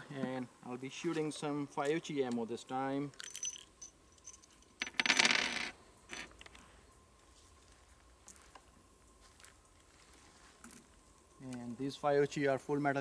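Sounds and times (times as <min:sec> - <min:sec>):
metal cartridge cases jingling: 0:03.1 - 0:05.2.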